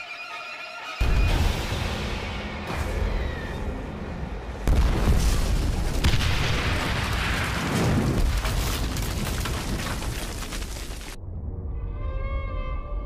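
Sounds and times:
large explosion blast and rumble: 1.0 - 11.4.

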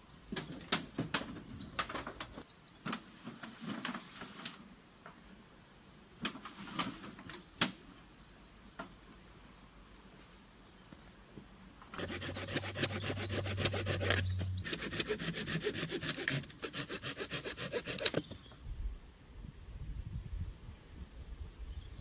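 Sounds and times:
hand saw cutting wood: 12.0 - 18.4.

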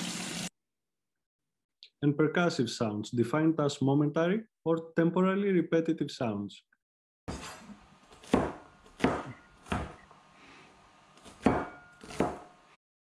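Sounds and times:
knife chopping on cutting board: 7.3 - 10.0, 11.2 - 12.5.

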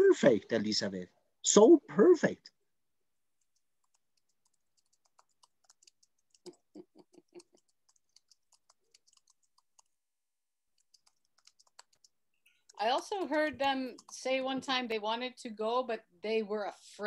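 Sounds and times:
keyboard typing: 3.4 - 10.0, 10.7 - 14.8.

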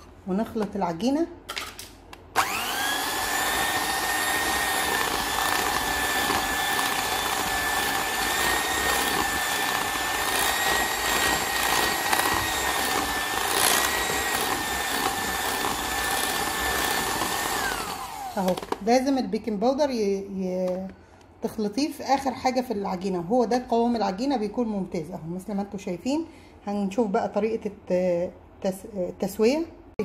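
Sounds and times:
electric hand mixer whining: 2.4 - 18.8.

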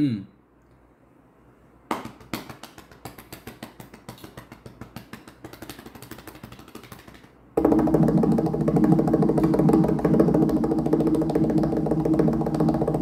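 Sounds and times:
recorded music with percussion: 7.6 - 13.0.

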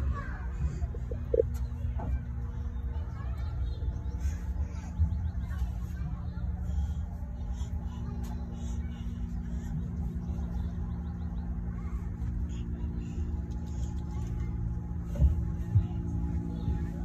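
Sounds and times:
low rumble: 0.0 - 3.1
low mechanical drone: 0.0 - 17.0.

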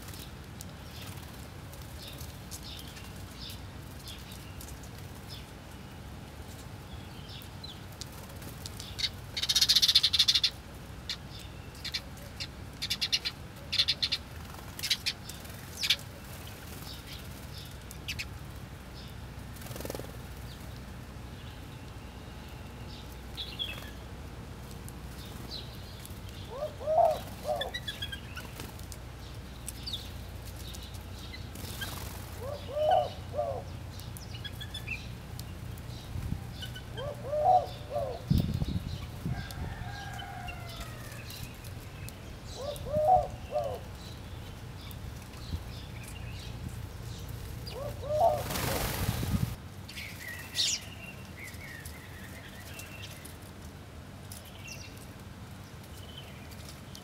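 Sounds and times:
sparrows chirping: 0.0 - 53.6, 54.2 - 57.0
wings fluttering: 14.0 - 18.2, 19.4 - 20.8, 27.0 - 32.6, 47.3 - 50.6.

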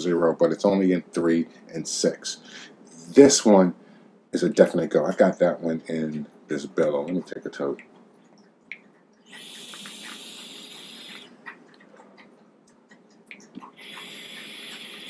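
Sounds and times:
e-cigarette hissing: 9.3 - 11.3, 13.6 - 15.0.

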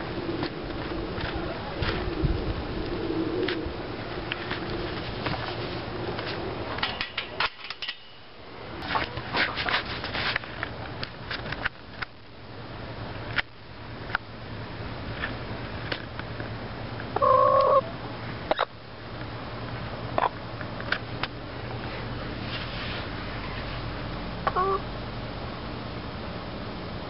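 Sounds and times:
hen call: 17.2 - 17.9.

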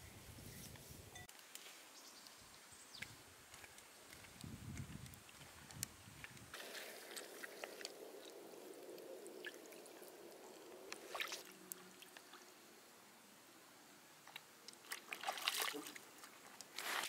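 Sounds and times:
lake water trickling and splashing: 1.6 - 13.3, 14.1 - 17.0
small splashes: 6.5 - 12.5, 14.3 - 17.0.

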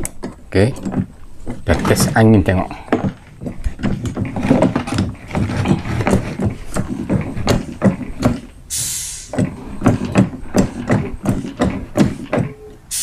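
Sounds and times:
hand pump plastic clicks and knocks: 0.0 - 8.6, 9.3 - 12.8
air hissing from nozzle: 8.7 - 9.4.

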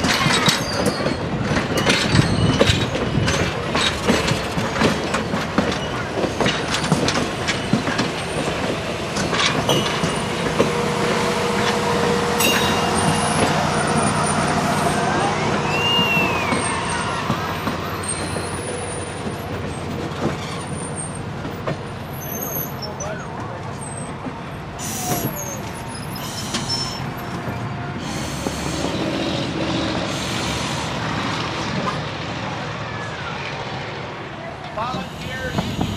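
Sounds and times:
train wheels clicking over rail joints: 0.0 - 14.7, 15.7 - 32.3
train rolling rumble: 0.0 - 35.9
wheel squeal: 0.1 - 3.9, 15.6 - 21.3, 22.0 - 24.2, 24.8 - 29.5.

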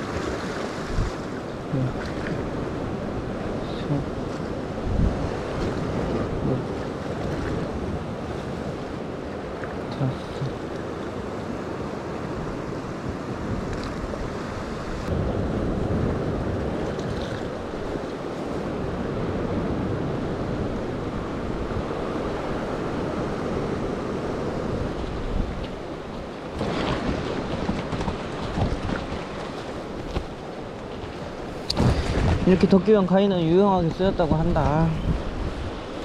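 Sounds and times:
waves washing against rocks: 0.0 - 12.2, 21.4 - 36.0
wind buffeting microphone: 0.0 - 36.0.

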